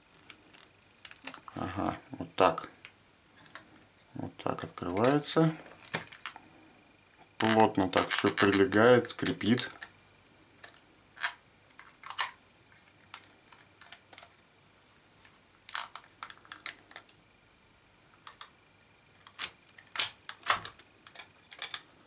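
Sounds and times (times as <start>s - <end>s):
plastic housing creaking: 7.4s - 9.9s.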